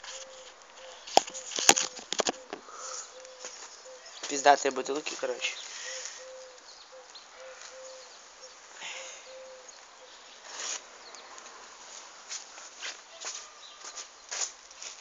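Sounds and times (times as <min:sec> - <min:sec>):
dove cooing: 0:00.0 - 0:04.3, 0:05.4 - 0:10.2
rustling: 0:00.0 - 0:04.4, 0:10.4 - 0:15.0.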